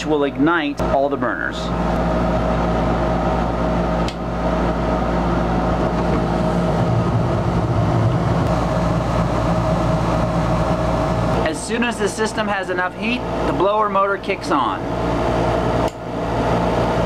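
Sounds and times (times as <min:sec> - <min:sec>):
furnace exhaust fan humming: 0:00.0 - 0:17.0
burner flames: 0:01.8 - 0:11.5.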